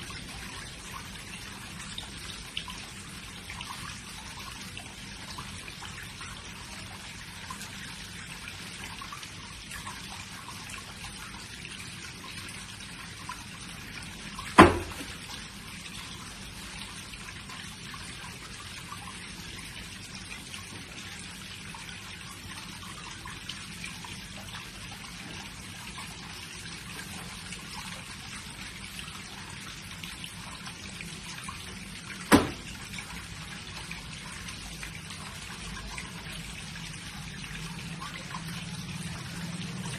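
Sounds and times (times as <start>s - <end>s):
running water trickling: 0.0s - 39.9s
bare foot stamping on wooden floor: 14.6s - 15.1s.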